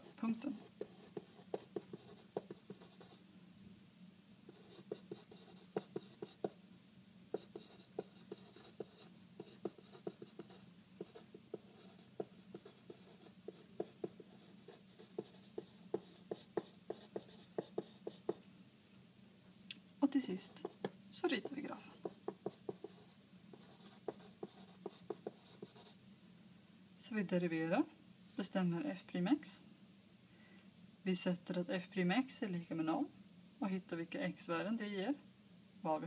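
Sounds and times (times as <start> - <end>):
marker pen writing on paper: 0.0 - 3.2, 4.5 - 6.6, 7.4 - 18.4, 20.4 - 26.0.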